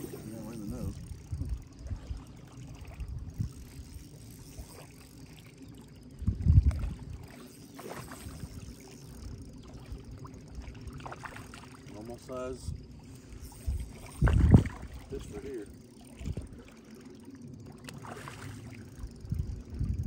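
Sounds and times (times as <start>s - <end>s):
wind noise on microphone: 0.0s - 4.8s, 6.2s - 7.3s, 12.6s - 15.4s, 16.2s - 16.6s, 19.2s - 20.0s
water noise: 0.0s - 20.0s.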